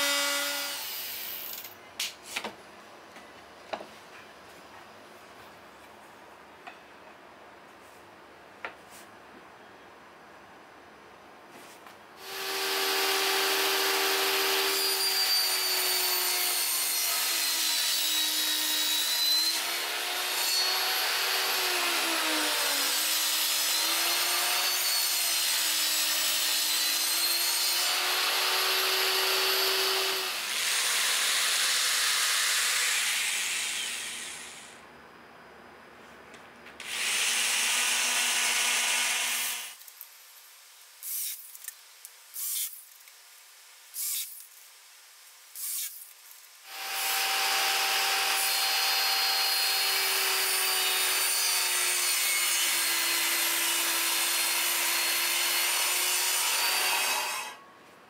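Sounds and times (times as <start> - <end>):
cordless drill boring into wood: 12.2 - 34.7, 36.8 - 39.8, 44.0 - 44.4, 45.6 - 46.1, 46.7 - 57.6
table saw cutting plywood: 25.9 - 34.8, 46.7 - 57.6.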